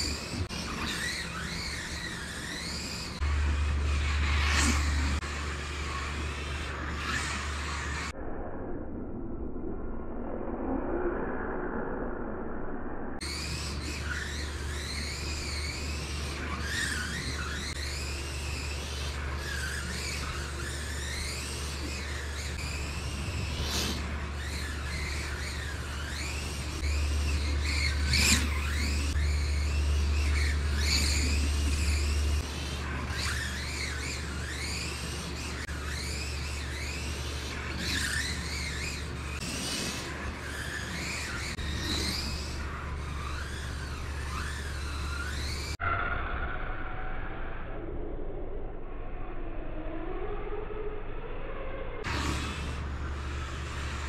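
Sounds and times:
toy car electric motors whining: 0:00.0 - 0:08.2, 0:13.2 - 0:46.0, 0:52.0 - 0:54.0
steady low hum: 0:00.0 - 0:45.8, 0:47.4 - 0:54.0.

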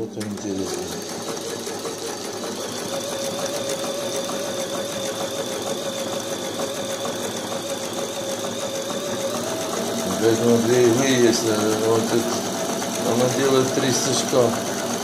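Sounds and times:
sewing machine stitching: 0:00.0 - 0:15.0.

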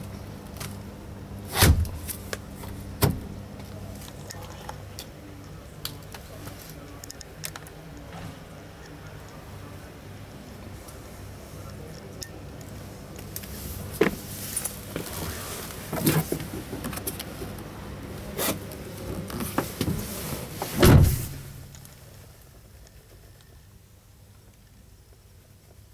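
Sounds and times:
low background hum: 0:00.0 - 0:25.9
low heavy thump: 0:20.8 - 0:21.6.

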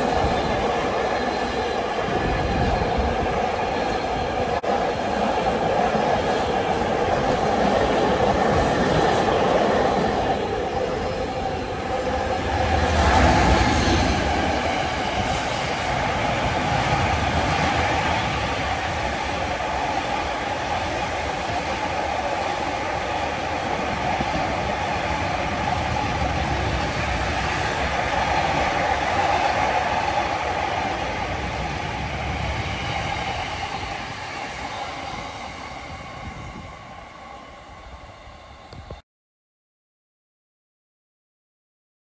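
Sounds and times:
freight train rolling on rails: 0:00.0 - 0:39.0.

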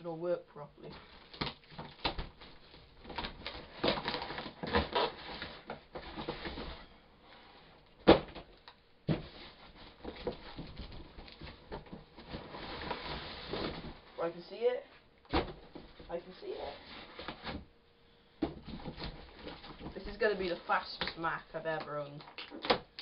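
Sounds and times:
cardboard and tape ripping: 0:01.2 - 0:06.7.

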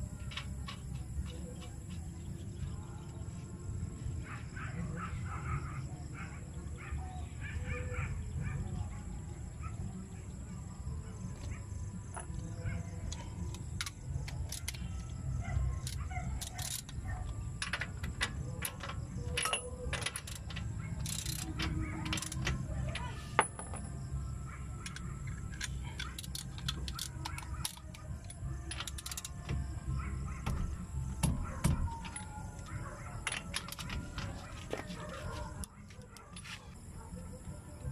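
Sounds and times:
metallic clicks of wrench and nut: 0:13.1 - 0:15.1, 0:15.8 - 0:23.9, 0:24.8 - 0:29.6.

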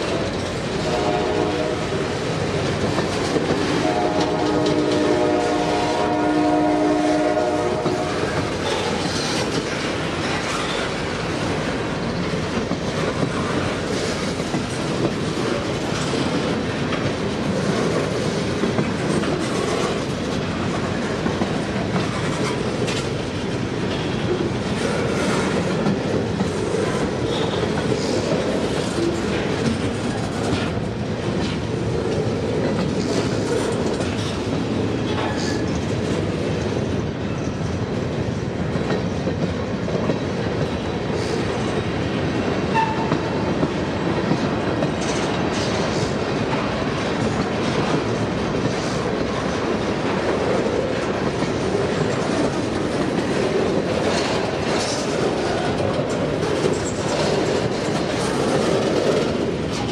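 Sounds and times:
train rumbling on rails: 0:00.0 - 0:59.9
wheels clicking over rail joints: 0:07.8 - 0:37.4, 0:38.2 - 0:59.9.

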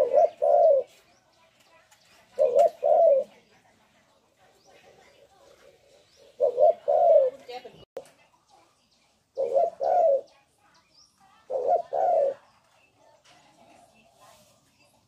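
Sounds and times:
dove cooing: 0:00.0 - 0:01.1, 0:02.1 - 0:03.5, 0:04.7 - 0:07.8, 0:09.4 - 0:10.3, 0:11.4 - 0:12.6.

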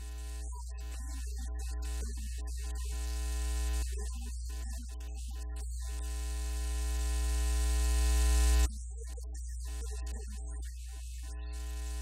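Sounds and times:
electrical mains hum: 0:05.8 - 0:08.7, 0:11.4 - 0:12.0.

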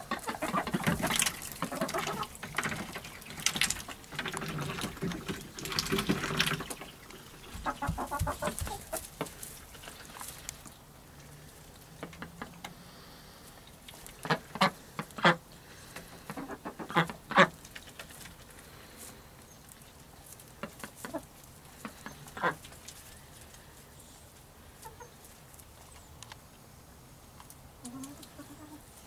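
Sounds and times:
ducks quacking: 0:00.0 - 0:05.0, 0:06.0 - 0:09.1, 0:14.1 - 0:17.6, 0:20.6 - 0:22.8.

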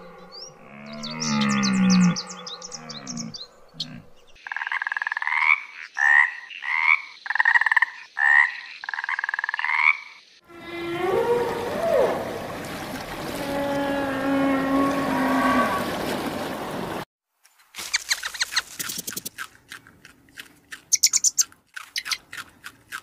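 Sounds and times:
low moaning animal call: 0:00.0 - 0:04.3, 0:10.4 - 0:12.6, 0:13.2 - 0:16.0
bird chirps: 0:00.0 - 0:04.4, 0:17.8 - 0:19.3, 0:20.9 - 0:22.2
tree frog croaking: 0:01.2 - 0:10.9
whale moans: 0:10.5 - 0:12.5, 0:13.2 - 0:16.0.

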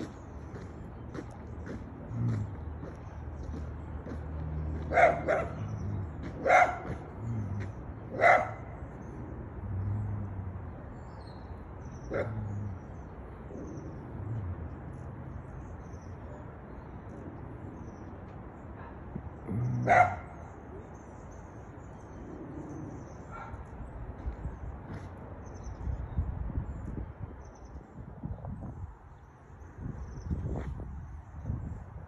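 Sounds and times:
dog barking: 0:04.8 - 0:05.7, 0:06.3 - 0:07.0, 0:08.1 - 0:08.8, 0:19.8 - 0:20.4, 0:23.3 - 0:23.6.

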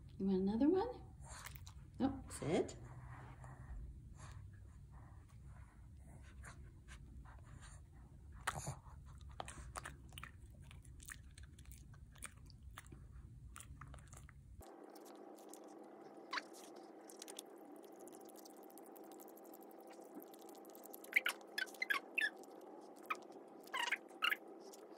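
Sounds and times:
dog crunching a treat: 0:08.5 - 0:24.9.

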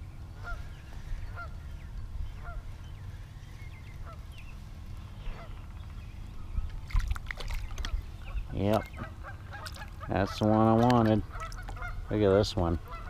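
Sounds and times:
low rumble: 0:00.0 - 0:10.0
bird calling: 0:00.0 - 0:13.0
fish splashing: 0:06.7 - 0:08.1, 0:08.8 - 0:11.9.

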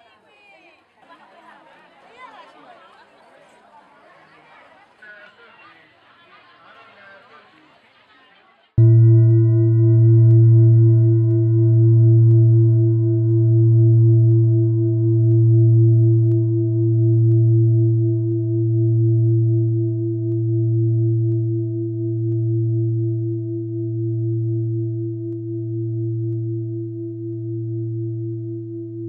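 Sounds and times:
deep bell ringing: 0:08.8 - 0:23.3.

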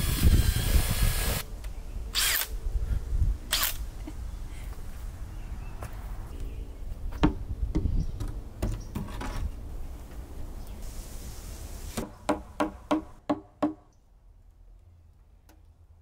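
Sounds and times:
sharp knocks on wood: 0:07.2 - 0:09.2.

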